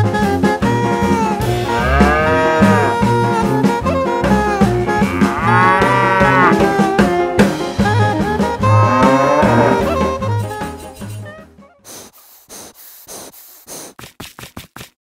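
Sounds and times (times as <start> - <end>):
upbeat music with brass: 0.0 - 11.6
cow mooing: 1.1 - 3.2, 4.7 - 7.7, 8.6 - 10.1.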